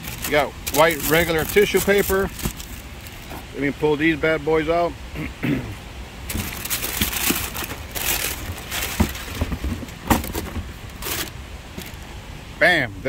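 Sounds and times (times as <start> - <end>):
tissue paper crinkling: 0.0 - 3.3, 6.3 - 9.7, 10.3 - 12.0
knocks against cardboard box: 8.9 - 10.7.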